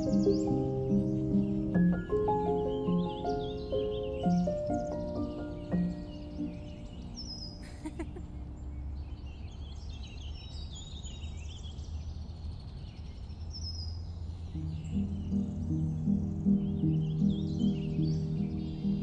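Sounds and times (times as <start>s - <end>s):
music: 0.0s - 7.6s, 14.6s - 19.0s
small birds chirping and trilling: 0.0s - 19.0s.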